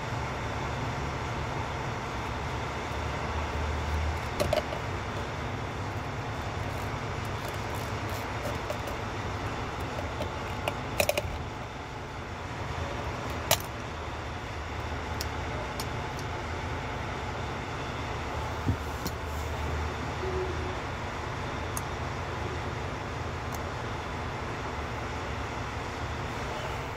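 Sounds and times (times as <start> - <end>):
steady low rumble: 0.0 - 26.6
plastic and metal clicks: 9.8 - 11.4.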